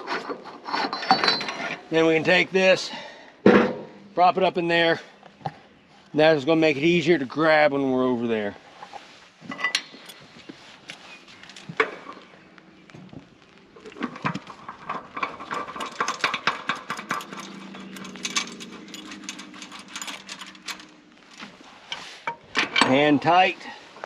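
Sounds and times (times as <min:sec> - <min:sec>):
metal valve fittings clinking: 0:14.3 - 0:21.0.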